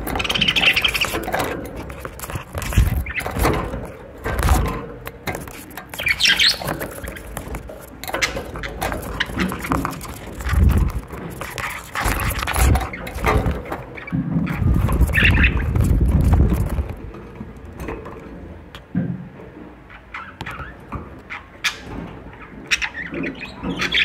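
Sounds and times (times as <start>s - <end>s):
budgerigars chirping: 0.1s - 1.4s, 5.9s - 7.6s, 11.4s - 15.8s, 21.3s - 24.0s.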